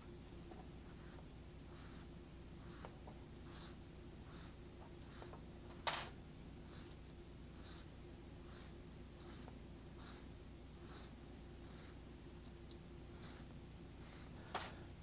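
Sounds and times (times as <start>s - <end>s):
soft rhythmic scraping on threads: 0.3s - 6.0s, 6.6s - 14.9s.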